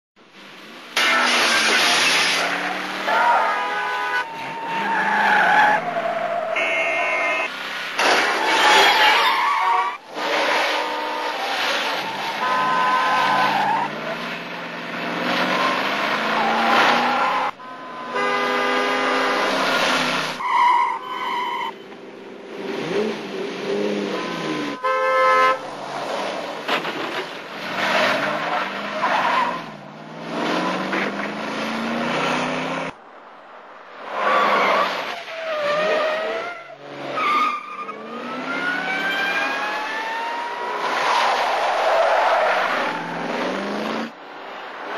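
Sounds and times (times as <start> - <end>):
car engines revving: 0.2 - 44.9
car horns: 2.8 - 14.2, 15.3 - 22.0, 24.0 - 25.8.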